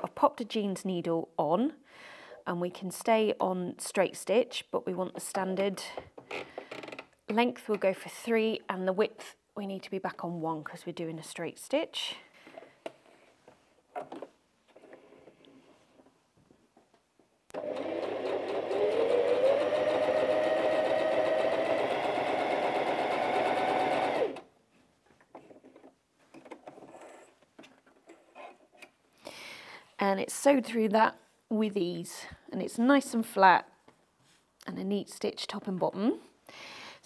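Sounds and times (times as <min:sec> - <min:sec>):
sewing machine stitching: 0:17.5 - 0:24.5.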